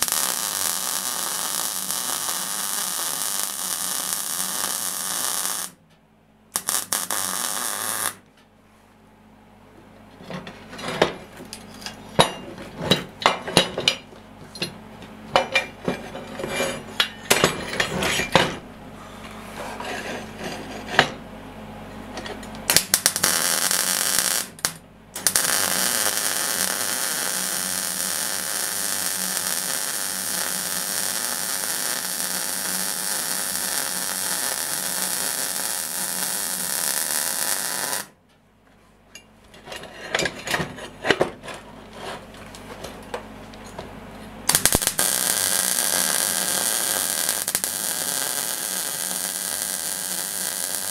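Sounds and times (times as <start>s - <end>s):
welding arc crackling hiss: 0.0s - 5.8s, 6.5s - 8.2s, 22.7s - 38.2s, 44.5s - 50.9s.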